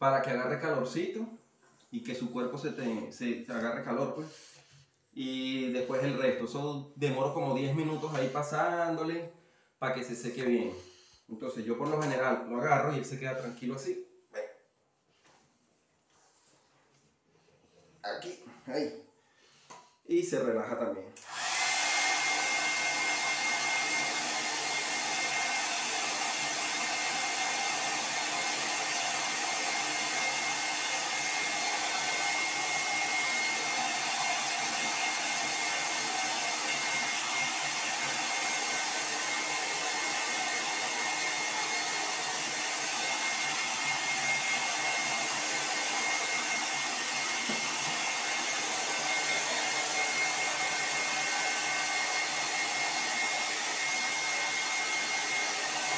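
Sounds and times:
hair dryer running: 5.2s - 6.7s, 7.3s - 8.9s, 10.0s - 10.8s, 21.2s - 55.9s.

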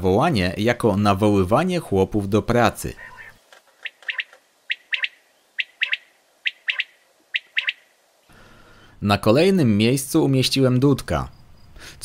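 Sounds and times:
quail calling: 2.9s - 8.0s.

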